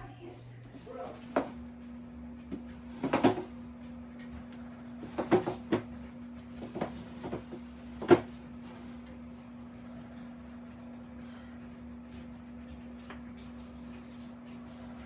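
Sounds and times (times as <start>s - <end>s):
steady low hum: 0.0s - 15.0s
furniture knocking on tile floor: 3.0s - 3.5s, 5.0s - 5.9s.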